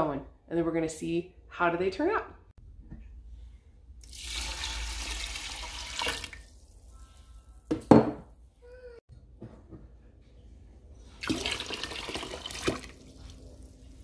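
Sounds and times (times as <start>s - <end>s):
tap water running into metal pot: 4.0s - 6.5s.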